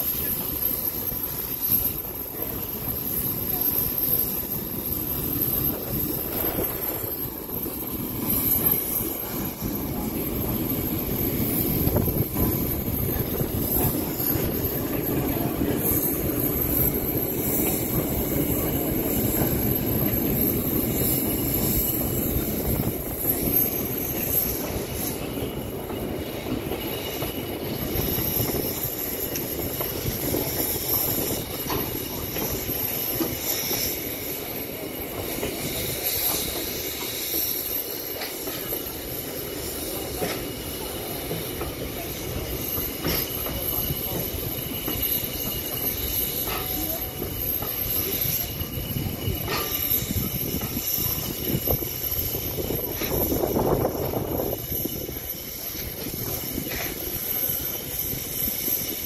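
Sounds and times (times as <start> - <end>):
diesel locomotive engine rumbling: 0.0 - 59.0
train wheels on rails: 0.0 - 59.0.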